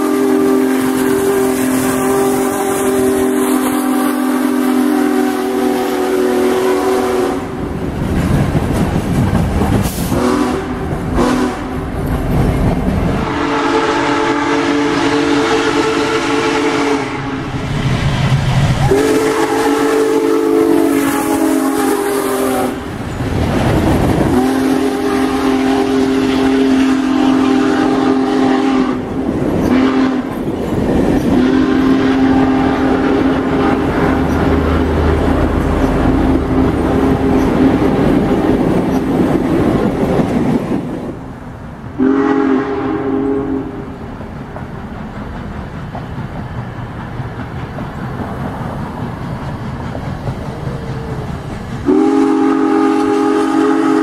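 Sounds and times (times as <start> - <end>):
steam locomotive whistle: 0.0 - 7.7, 10.0 - 11.9, 13.2 - 17.7, 18.8 - 23.0, 24.2 - 30.4, 31.2 - 38.0, 42.0 - 44.0, 51.8 - 54.0
train rumbling on rails: 0.0 - 54.0.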